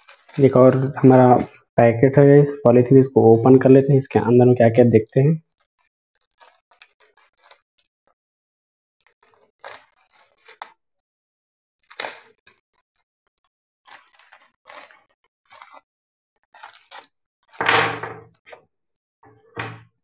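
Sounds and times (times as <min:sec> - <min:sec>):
packaging crinkling: 0:00.0 - 0:01.7, 0:05.4 - 0:07.7, 0:09.0 - 0:10.8, 0:11.8 - 0:12.6, 0:13.4 - 0:17.6.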